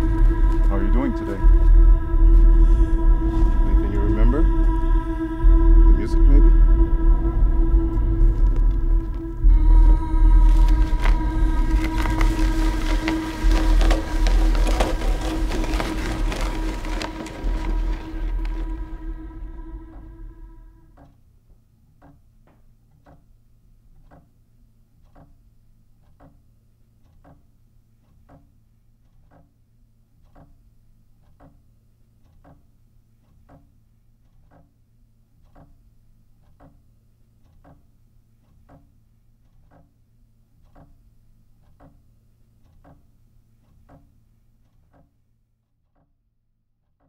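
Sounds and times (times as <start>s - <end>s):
music: 0.0s - 21.2s
faint low hum: 0.0s - 44.7s
clock ticking: 21.0s - 21.3s, 22.0s - 23.4s, 24.0s - 24.4s, 25.0s - 29.6s, 30.2s - 34.8s, 35.4s - 40.0s, 40.6s - 45.2s.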